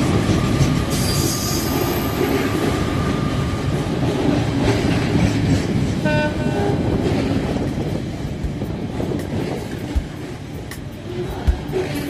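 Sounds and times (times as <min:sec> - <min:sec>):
diesel train engine rumble: 0:00.0 - 0:12.0
two-tone train horn blast: 0:06.0 - 0:07.2.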